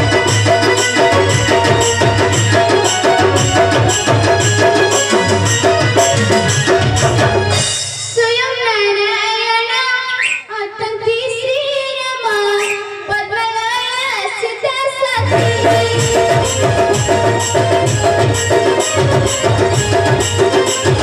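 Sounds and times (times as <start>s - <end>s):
drums quick steady beat: 0.0s - 8.5s, 15.2s - 21.0s
girl singing with vibrato: 8.2s - 17.6s.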